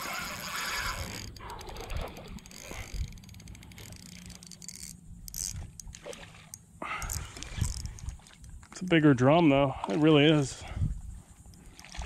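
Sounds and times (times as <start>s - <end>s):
fishing reel ticking and clicking: 0.0s - 8.6s.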